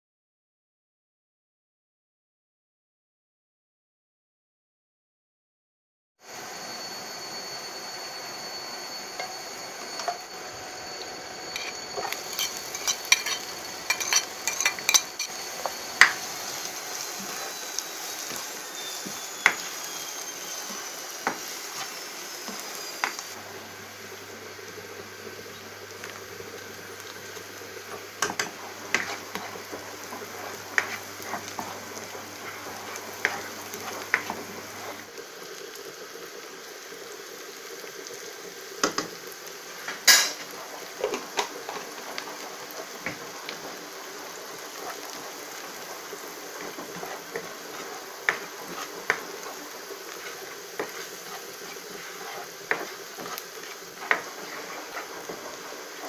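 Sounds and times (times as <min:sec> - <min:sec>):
onions sizzling in oil: 0:06.2 - 0:56.0
spatula scraping and knocking pan: 0:09.2 - 0:10.3, 0:11.4 - 0:19.9, 0:20.5 - 0:23.2, 0:27.8 - 0:35.0, 0:44.5 - 0:56.0.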